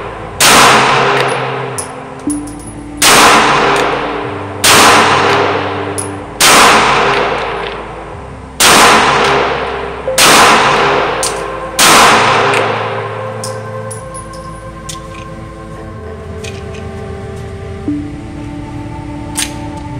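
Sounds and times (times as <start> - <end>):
pistol shots echoing indoors: 0.4 - 7.8, 8.6 - 14.3.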